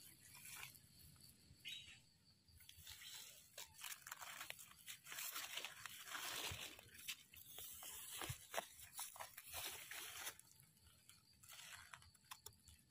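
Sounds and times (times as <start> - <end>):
dry leaves crunching: 2.7 - 12.4.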